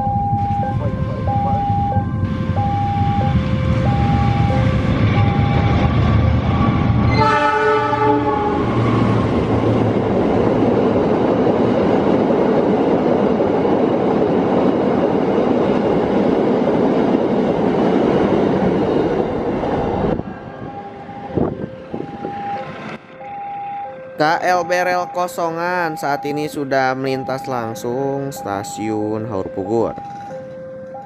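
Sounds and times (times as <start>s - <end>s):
level crossing signal chiming: 0.0s - 6.8s, 20.7s - 31.0s
train wagons rumbling over track: 0.0s - 31.0s
train horn blast: 7.0s - 8.8s.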